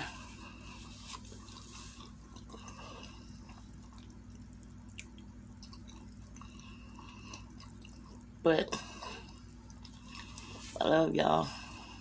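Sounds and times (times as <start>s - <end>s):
steady low hum: 0.0s - 12.0s
wet mouth clicks eating: 1.2s - 8.3s.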